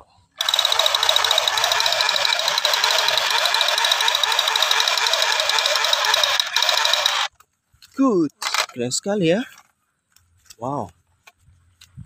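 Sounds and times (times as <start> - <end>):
toy gun machine-gun sound effect: 0.4 - 7.3.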